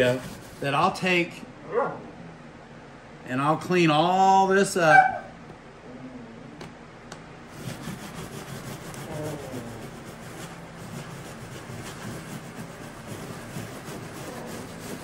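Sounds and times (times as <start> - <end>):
scrub brush rubbing on glass: 0.0 - 1.1, 7.5 - 15.0.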